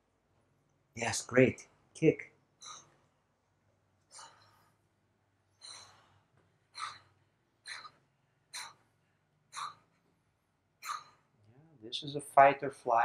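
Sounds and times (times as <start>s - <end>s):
woman breathing forcefully: 4.1s - 4.8s, 5.6s - 8.8s.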